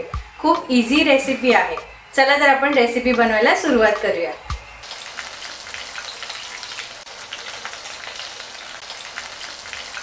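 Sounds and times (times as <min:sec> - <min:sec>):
food sizzling in hot oil: 0:03.6 - 0:10.0.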